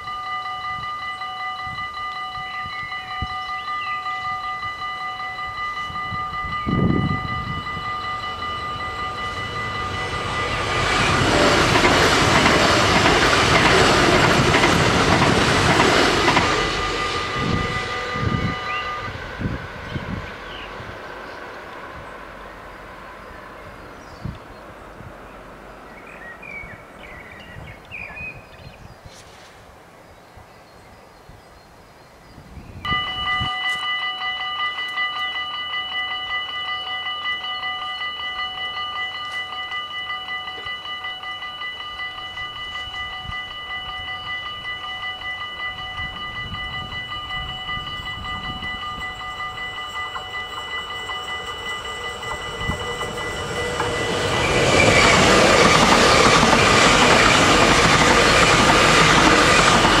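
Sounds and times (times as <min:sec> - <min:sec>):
level crossing bells ringing: 0:00.0 - 0:19.5, 0:32.9 - 1:00.0
electric train passing: 0:00.0 - 0:28.8, 0:32.8 - 1:00.0.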